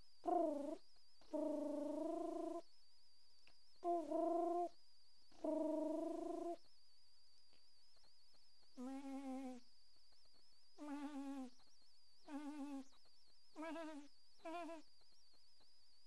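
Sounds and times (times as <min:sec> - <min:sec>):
faint high-pitched whine: 0:00.0 - 0:16.0
person humming short tones: 0:10.8 - 0:11.5, 0:12.3 - 0:12.9, 0:13.6 - 0:14.8.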